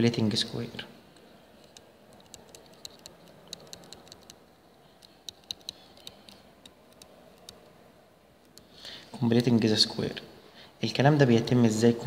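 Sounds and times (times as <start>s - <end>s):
low room noise: 0.0s - 12.0s
stylus tapping on glass screen: 1.6s - 4.4s.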